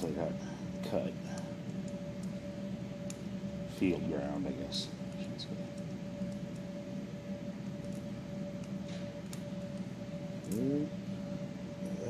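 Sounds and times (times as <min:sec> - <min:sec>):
steady background hum: 0:00.0 - 0:12.0
faint ticks and clicks of wires: 0:00.8 - 0:02.4, 0:03.0 - 0:03.3, 0:05.1 - 0:06.8, 0:07.7 - 0:10.7.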